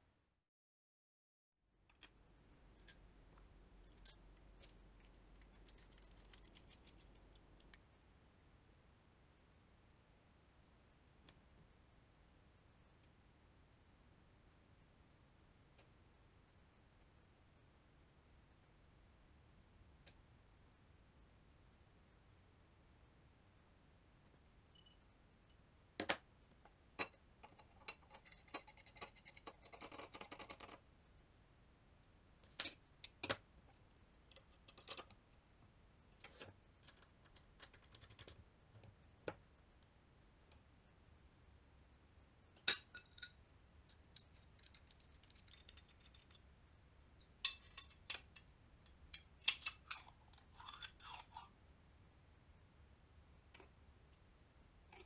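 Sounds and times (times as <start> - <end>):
metal parts clicking and knocking: 3.8 - 7.8, 44.0 - 46.4, 49.2 - 51.4.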